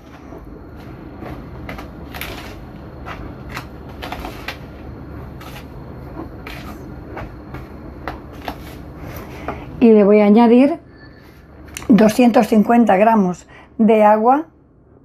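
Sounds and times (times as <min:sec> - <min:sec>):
spatula scraping plastic bowl: 0:00.0 - 0:09.6.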